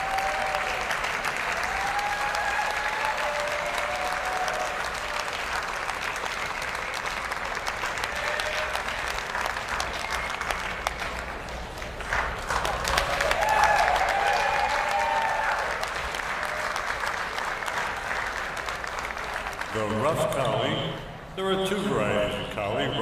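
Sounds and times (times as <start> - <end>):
people whooping: 0.0 - 5.6, 8.0 - 9.2, 13.0 - 17.1
audience applauding: 0.0 - 20.1.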